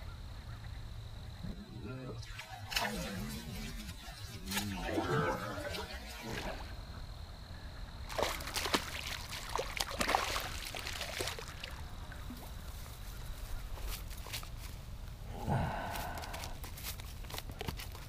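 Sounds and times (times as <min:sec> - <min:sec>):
fish splashing and thrashing: 0:08.1 - 0:12.3.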